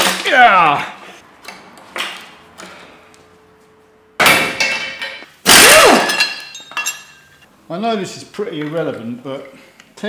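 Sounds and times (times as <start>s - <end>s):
loud metal clangs: 4.2s - 7.3s
metal tools clattering: 4.4s - 5.3s, 6.1s - 7.4s.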